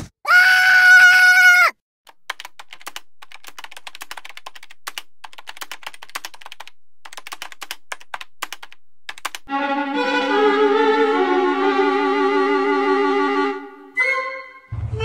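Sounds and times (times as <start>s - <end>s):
typing on laptop keyboard: 2.1s - 9.5s.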